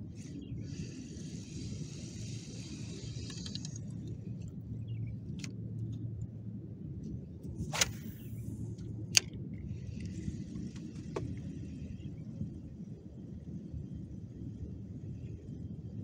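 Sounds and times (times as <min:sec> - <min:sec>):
steady low rumble: 0:00.0 - 0:16.0
fishing reel clicks: 0:01.3 - 0:04.1.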